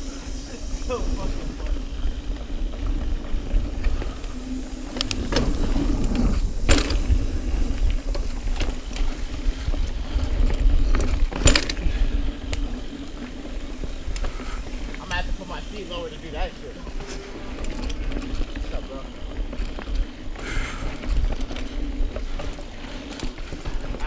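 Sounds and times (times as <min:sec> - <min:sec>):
bike rattling: 0:00.0 - 0:24.0
wind buffeting microphone: 0:00.0 - 0:24.0
bike knocking on bumps: 0:01.6 - 0:15.8.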